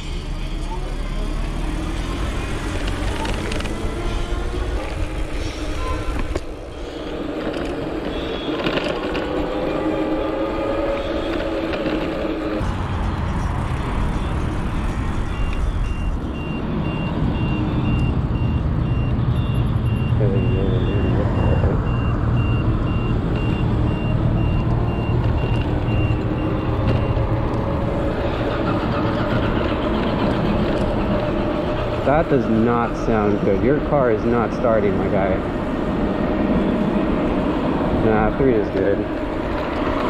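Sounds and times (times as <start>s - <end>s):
hub motor whine: 0.0s - 40.0s
wind and tyre rumble: 0.0s - 40.0s
high electronic beeps: 15.2s - 27.3s.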